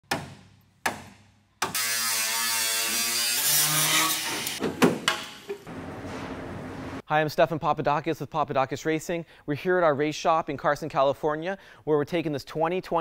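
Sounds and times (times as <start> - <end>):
grinder on steel: 1.7 - 4.6
sharp knocks: 4.6 - 6.4.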